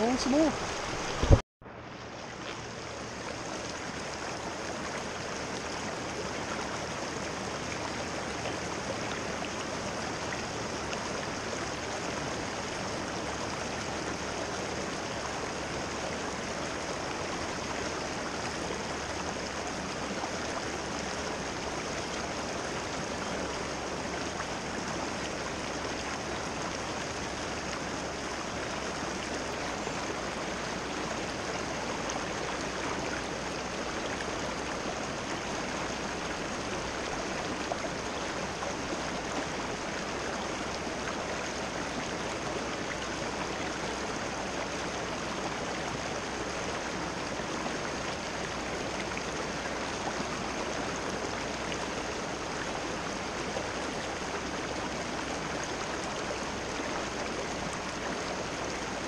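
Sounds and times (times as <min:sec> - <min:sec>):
water rushing over rocks: 0:00.0 - 0:01.4, 0:02.0 - 0:59.0.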